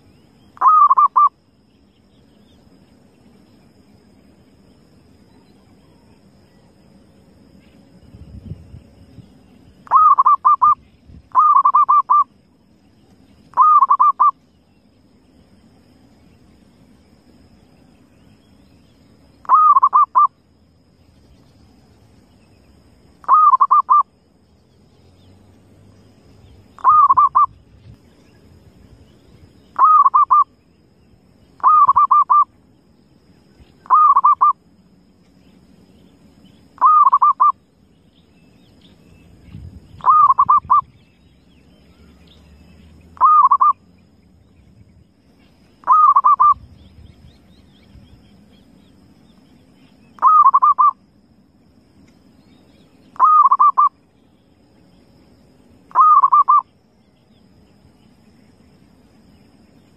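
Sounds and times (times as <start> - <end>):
dove cooing: 0.6 - 1.3, 9.9 - 12.2, 13.5 - 14.3, 19.4 - 20.3, 23.2 - 24.0, 26.8 - 27.5, 29.8 - 30.4, 31.6 - 32.4, 33.8 - 34.5, 36.8 - 37.5, 40.0 - 40.8, 43.2 - 43.7, 45.8 - 46.6, 50.2 - 51.0, 53.2 - 53.9, 55.9 - 56.6.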